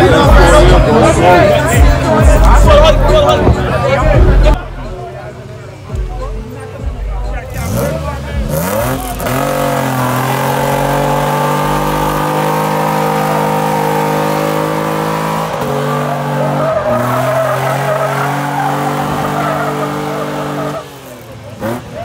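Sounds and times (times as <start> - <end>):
tyres squealing on asphalt: 6.5 - 22.0
truck engine revving high: 7.2 - 22.0.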